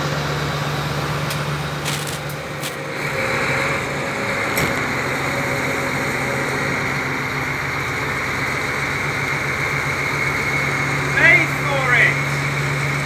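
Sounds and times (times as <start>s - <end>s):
heavy vehicle engine idling: 0.0s - 13.0s
high whine: 5.0s - 13.0s.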